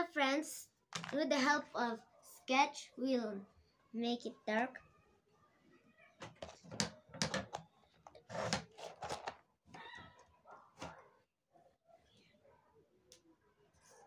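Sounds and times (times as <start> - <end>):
handling taps and rustles: 0.9 - 1.5, 6.2 - 9.9.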